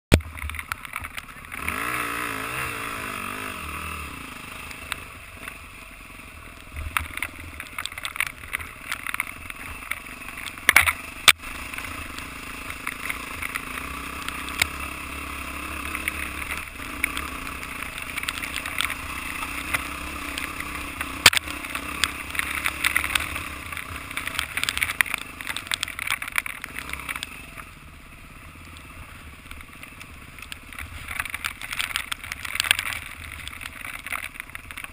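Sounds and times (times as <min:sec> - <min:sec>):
dirt bike engine running: 0:00.1 - 0:34.9
knocks and clatter from bumps: 0:06.8 - 0:14.8, 0:15.8 - 0:27.3, 0:29.4 - 0:34.9.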